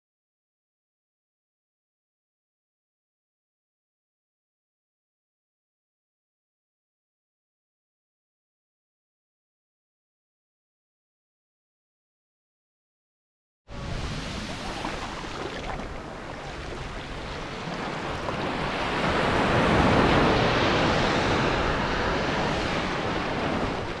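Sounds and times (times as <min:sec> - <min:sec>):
small waves washing up beach: 0:13.7 - 0:24.0.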